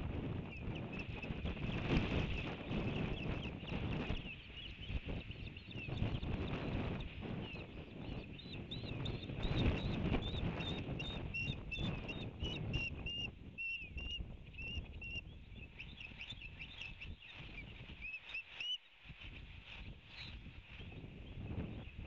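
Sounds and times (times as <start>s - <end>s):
wind rumbling on microphone: 0.0s - 22.0s
osprey whistled chirps: 2.3s - 18.9s.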